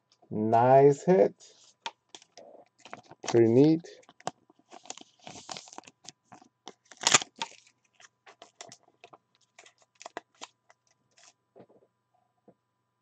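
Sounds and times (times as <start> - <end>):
cards clicking and rustling: 1.8 - 11.4.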